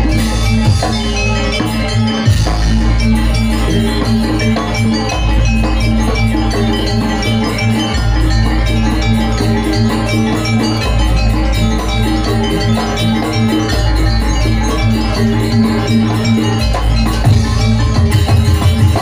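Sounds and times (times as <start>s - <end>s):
gamelan ensemble playing: 0.0s - 19.0s.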